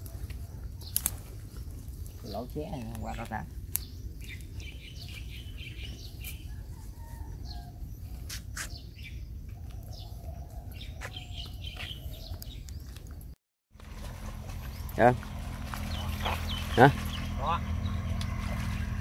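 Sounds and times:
small birds chirping: 0.0s - 13.4s, 14.4s - 19.0s
twigs snapping: 0.8s - 1.6s
footsteps through dry brush: 10.8s - 13.0s, 13.8s - 19.0s.

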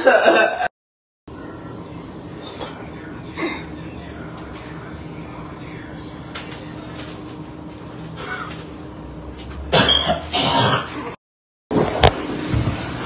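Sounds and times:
faint hum: 1.3s - 10.8s.

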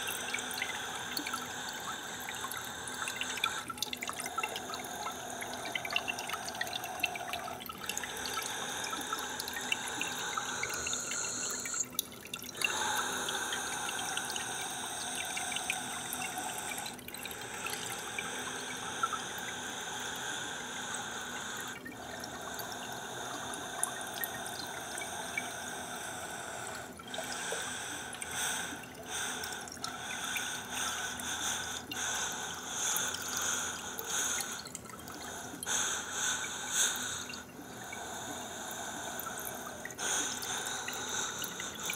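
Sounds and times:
water trickling and dripping: 0.0s - 41.9s.

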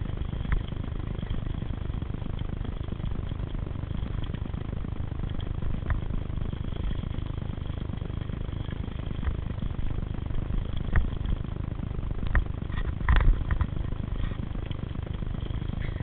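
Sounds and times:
bike rattling over bumps: 0.0s - 16.0s.

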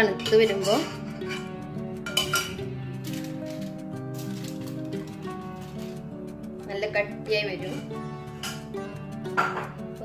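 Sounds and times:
background music with held tones: 0.0s - 10.0s
metal spoon clinking on steel pan: 0.1s - 2.6s.

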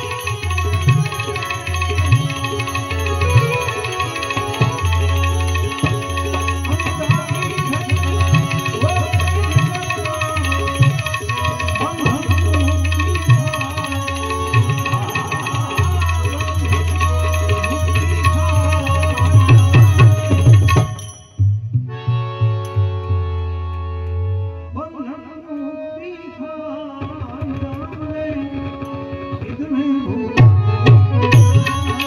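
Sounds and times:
man singing: 0.0s - 21.0s, 24.7s - 32.0s
hand cymbals clashing: 0.0s - 21.6s, 31.3s - 32.0s
keyed banjo: 0.0s - 23.4s, 30.4s - 32.0s
harmonium: 0.0s - 32.0s
tabla: 0.0s - 32.0s.

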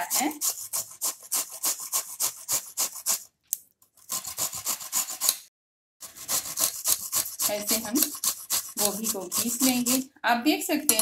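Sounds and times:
cauliflower rasping on a grater: 0.0s - 3.3s, 4.0s - 5.4s, 6.0s - 10.1s.

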